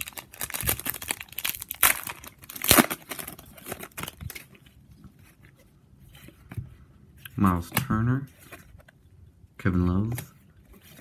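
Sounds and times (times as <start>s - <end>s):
foil wrapper tearing and crinkling: 0.0s - 4.4s.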